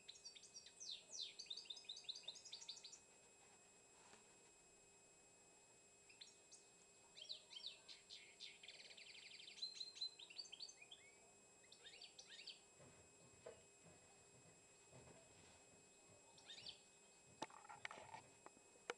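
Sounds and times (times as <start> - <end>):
songbird chirping and trilling: 0.0 - 3.1, 6.1 - 12.7, 15.9 - 17.9.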